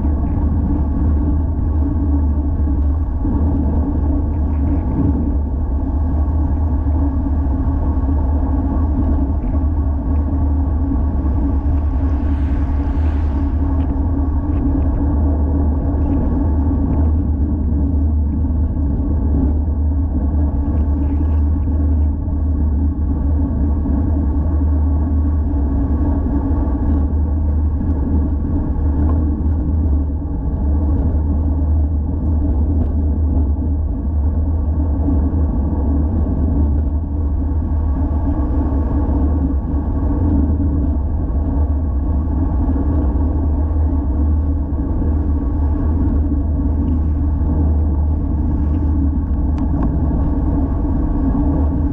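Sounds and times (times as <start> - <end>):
road noise: 0.0 - 17.8
wind rumble: 0.0 - 51.9.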